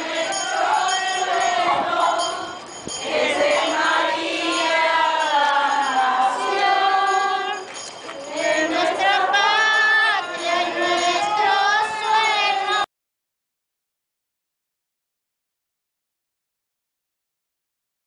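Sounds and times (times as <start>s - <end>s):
group singing a hymn: 0.0s - 12.9s.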